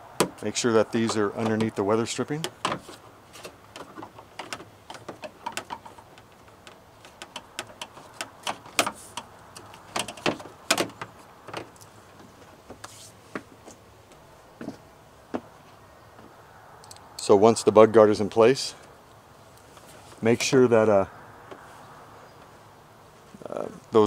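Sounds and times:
plastic clicks and light knocks: 1.0 - 1.8.

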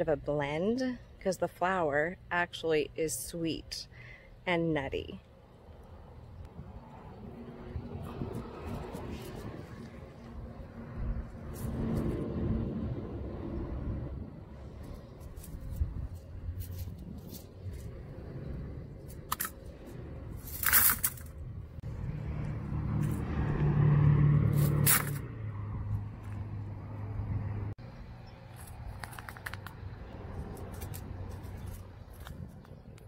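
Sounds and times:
low engine hum: 5.2 - 33.0
dry pods rustling and crackling: 14.7 - 21.4, 28.5 - 33.0.

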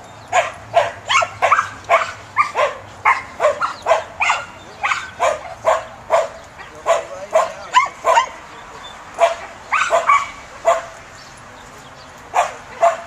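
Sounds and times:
dog barking: 0.3 - 8.4, 9.2 - 11.0, 12.3 - 13.0.

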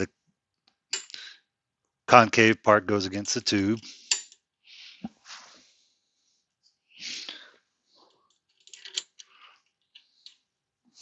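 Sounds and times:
person breathing: 1.0 - 1.5, 3.8 - 8.3, 9.2 - 11.0.

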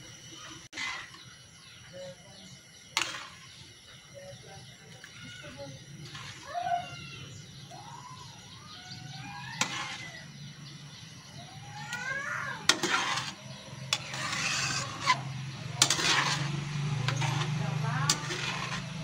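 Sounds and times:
metal ladle scraping pan: 0.4 - 1.2, 3.0 - 3.6, 6.0 - 6.5, 9.1 - 10.2, 12.0 - 19.0.

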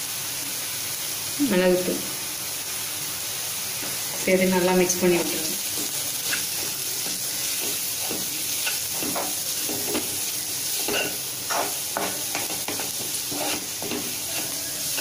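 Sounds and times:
onions sizzling in oil: 0.0 - 15.0
spatula scraping pan: 5.2 - 15.0.

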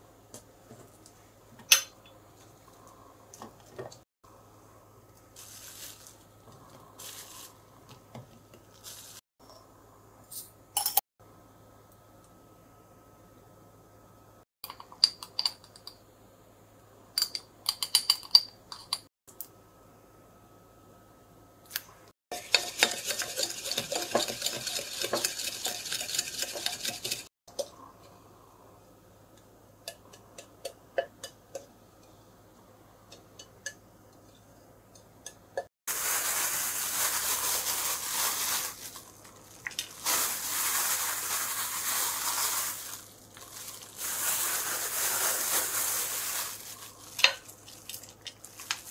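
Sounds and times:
shredded cheese rustling: 5.4 - 6.3, 35.9 - 48.9
spoon stirring: 22.3 - 27.3.

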